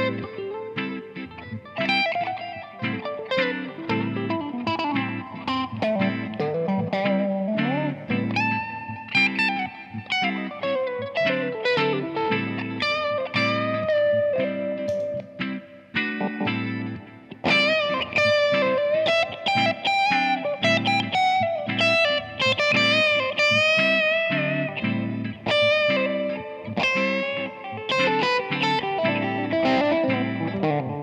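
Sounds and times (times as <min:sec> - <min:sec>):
electric guitar lead with bends: 0:00.0 - 0:31.0
strummed guitar chords: 0:00.0 - 0:31.0.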